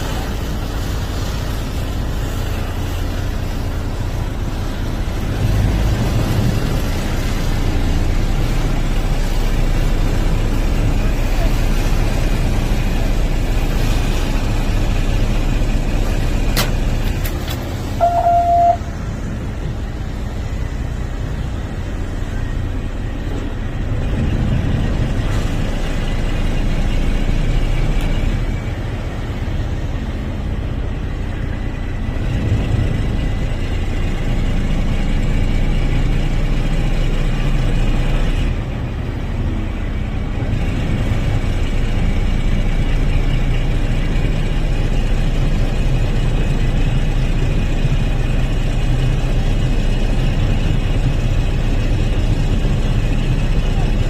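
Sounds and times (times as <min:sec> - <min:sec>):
boat engine running: 0:00.0 - 0:54.0
low rumble of water: 0:00.0 - 0:54.0
wind: 0:00.0 - 0:54.0
short horn toot: 0:18.0 - 0:18.9.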